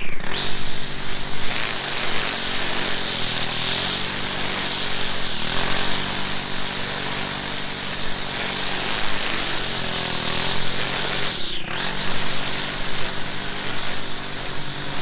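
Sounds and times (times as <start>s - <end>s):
string trimmer running: 0.0s - 15.0s.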